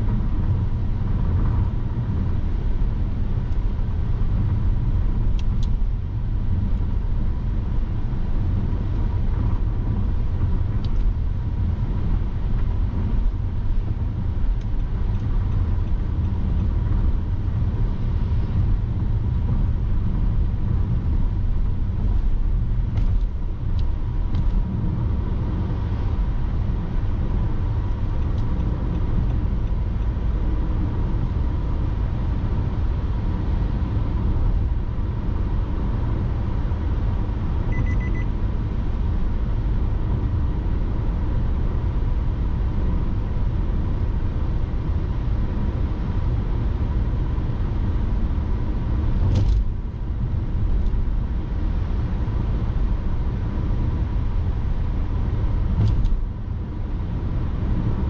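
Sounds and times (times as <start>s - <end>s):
car road and engine rumble: 0.0s - 58.0s
short beep: 37.7s - 38.3s
faint steady tone: 37.7s - 38.4s.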